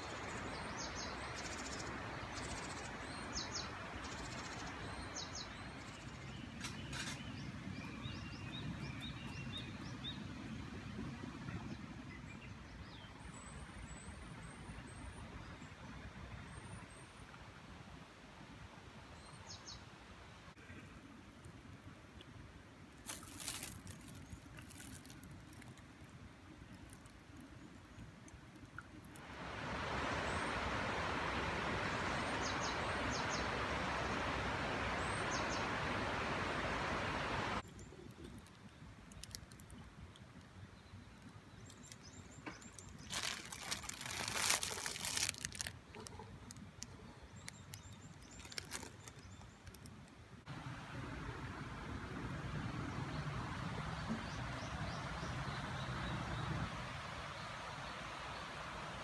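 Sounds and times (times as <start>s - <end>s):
foil packet crinkling: 23.0s - 25.8s, 42.8s - 45.8s, 48.3s - 49.2s
rustling noise: 23.0s - 25.9s, 42.6s - 46.2s.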